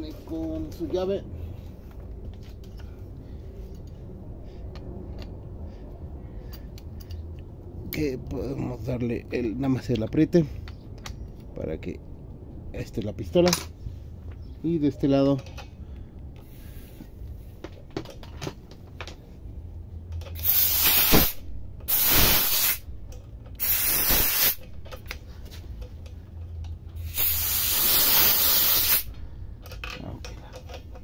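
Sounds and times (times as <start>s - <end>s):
compressed air hissing: 16.4s - 17.6s, 20.3s - 22.9s, 23.6s - 24.7s, 27.0s - 29.2s.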